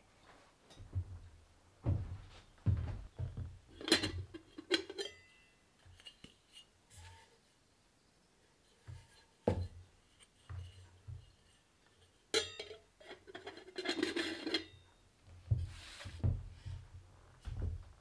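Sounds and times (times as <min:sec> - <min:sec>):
metal pot lid clinking and scraping: 0:03.8 - 0:07.3, 0:10.2 - 0:14.8.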